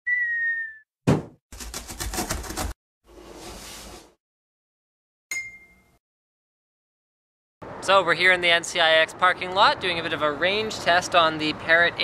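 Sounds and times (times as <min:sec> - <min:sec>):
whistle dipping in pitch: 0:00.0 - 0:00.9
sharp thump: 0:01.0 - 0:01.4.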